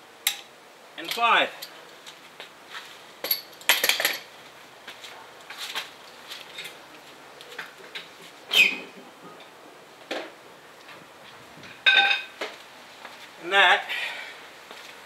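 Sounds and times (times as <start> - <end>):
metal tools clinking on brick: 3.2 - 4.3, 11.8 - 12.3.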